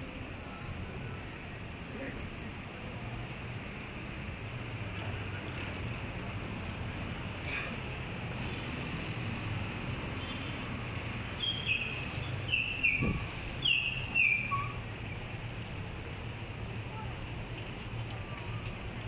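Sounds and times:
street traffic hum: 0.0 - 19.0
bird chirping: 11.4 - 14.7.

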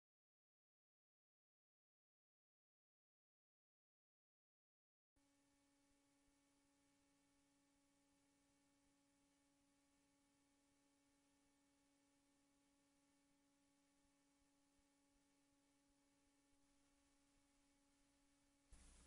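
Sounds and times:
very faint steady tone: 5.2 - 19.0
faint hiss: 18.7 - 19.0.

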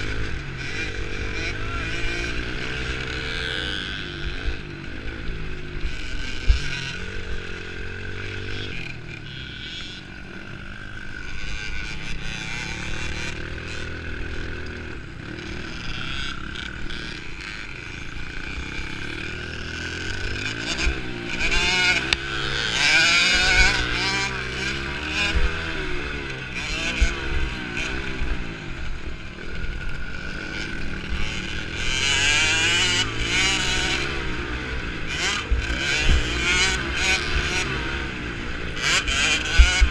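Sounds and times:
two-stroke motorbike engine revving: 0.0 - 39.9.

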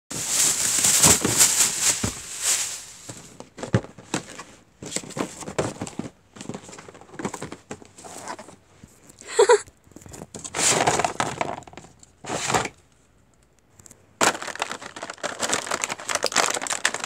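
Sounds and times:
handling rustling: 0.1 - 9.2.

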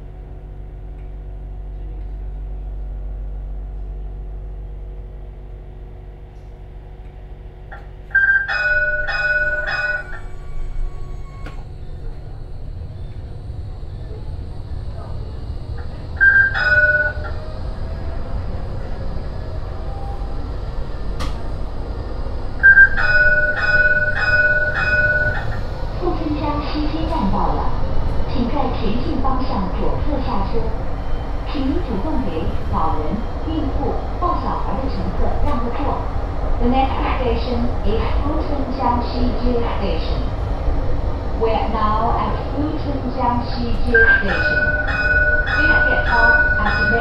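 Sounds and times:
tram rolling rumble and hum: 0.0 - 47.0
click: 1.0 - 1.2, 11.4 - 11.6, 21.2 - 21.5
tram warning bell ringing: 7.6 - 14.4, 15.0 - 28.2, 41.5 - 47.0
electronic warning bell ringing: 8.1 - 10.4, 16.2 - 17.4, 22.6 - 25.7, 43.9 - 47.0.

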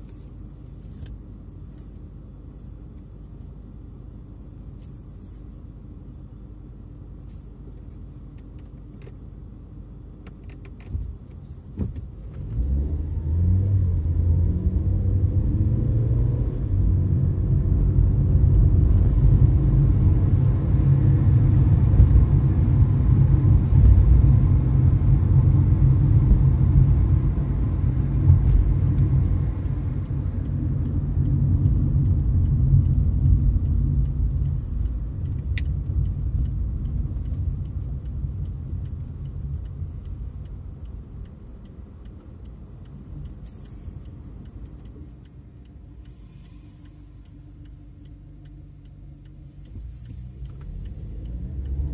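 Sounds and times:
car road and engine rumble: 0.0 - 51.9
turn signal ticking: 12.0 - 51.9.

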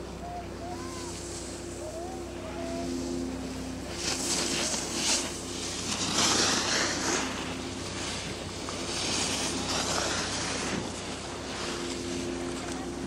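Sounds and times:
ski edges scraping on hard snow: 4.0 - 10.8.

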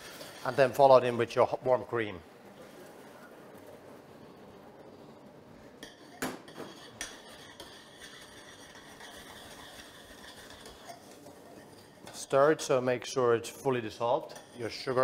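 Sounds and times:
metal spoon scraping saucepan: 0.0 - 0.9, 5.8 - 12.8, 13.5 - 15.0.

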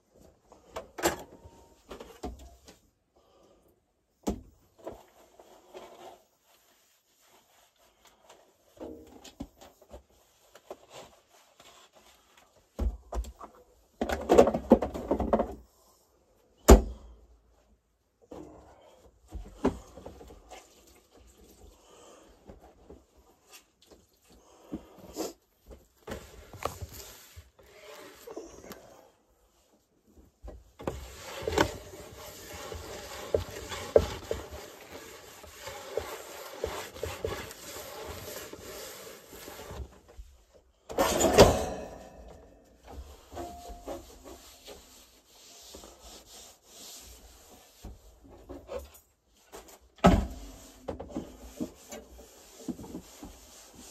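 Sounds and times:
rubbing and scraping objects: 4.6 - 16.0, 17.5 - 53.9.

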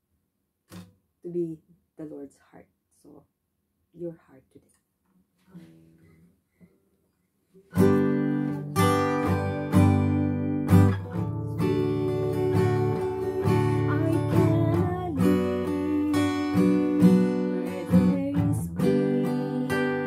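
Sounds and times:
acoustic guitar strumming: 7.7 - 20.0
woman singing: 11.2 - 20.0.

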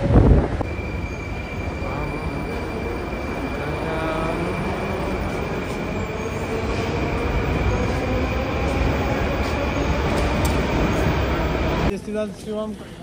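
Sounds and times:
train wheels rumbling on track: 0.0 - 11.9
high wheel squeal: 0.6 - 6.9.

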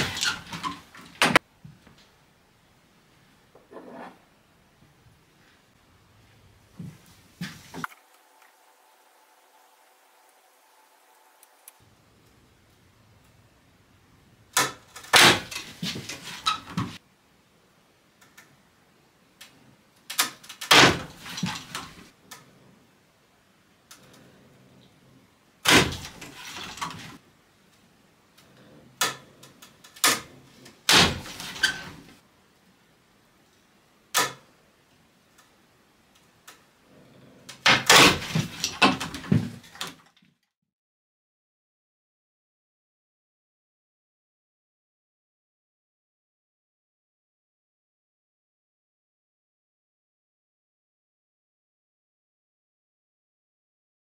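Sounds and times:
wooden knocking and rattling: 37.6 - 40.0.

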